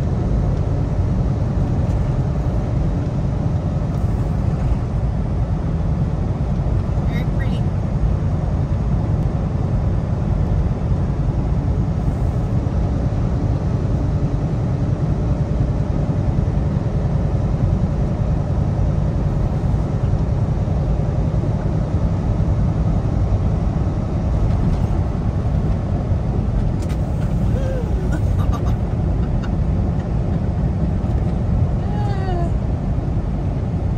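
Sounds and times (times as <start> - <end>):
truck engine drone: 0.0 - 33.9
tyre and road noise: 21.6 - 33.9.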